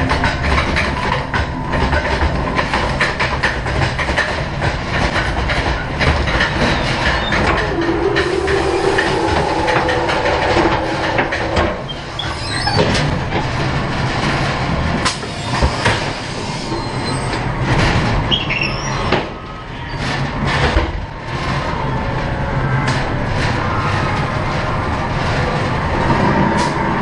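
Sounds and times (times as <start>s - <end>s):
ride car wheels rumbling on track: 0.0s - 27.0s
high squeals: 6.7s - 13.1s.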